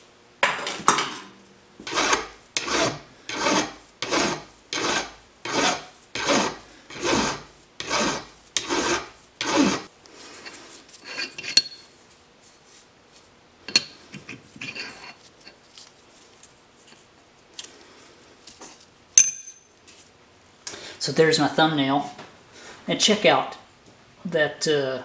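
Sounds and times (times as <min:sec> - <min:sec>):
hand file rasping on metal: 0:01.8 - 0:09.9.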